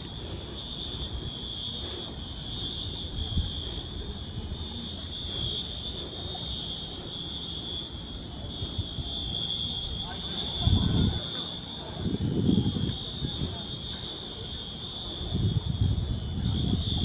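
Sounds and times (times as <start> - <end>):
fire alarm horns: 0.0 - 17.0.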